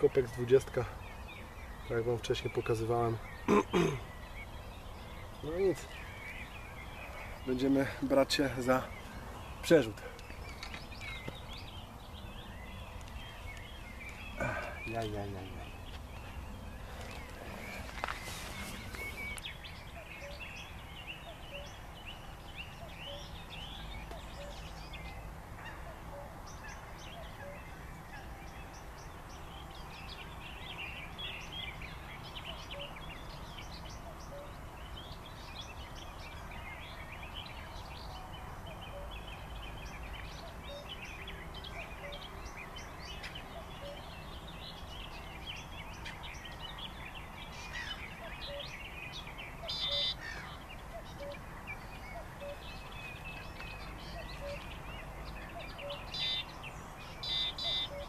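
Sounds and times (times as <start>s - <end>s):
birds chirping chorus: 0.0s - 58.0s
faint low bird call: 49.6s - 54.8s.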